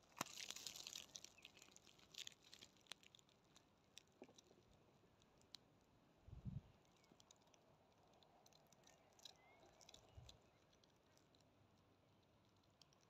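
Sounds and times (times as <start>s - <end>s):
faint ticks and crackles: 0.0s - 13.0s.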